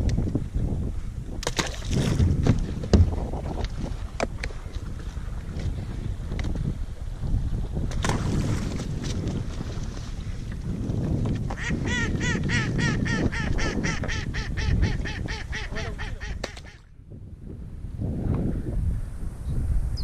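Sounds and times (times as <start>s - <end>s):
wind noise on microphone: 0.0s - 20.0s
duck quacking: 11.6s - 16.8s.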